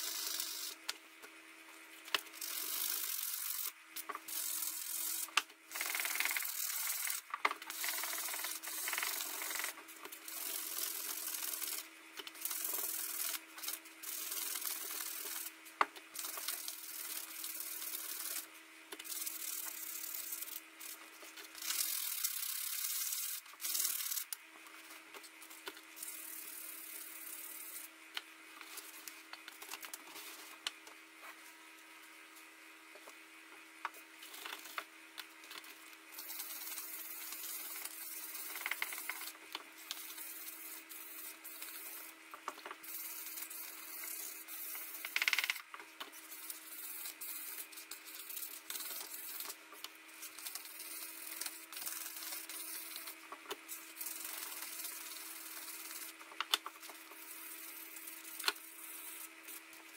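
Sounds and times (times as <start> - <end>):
steel rubbed on abrasive paper: 2.3 - 15.6, 16.2 - 24.3, 26.0 - 27.9, 36.1 - 42.2, 42.8 - 45.4, 46.2 - 59.8.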